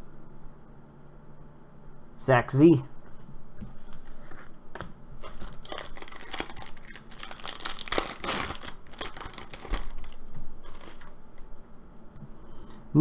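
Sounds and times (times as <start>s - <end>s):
foil wrapper crinkling and tearing: 5.2s - 11.2s.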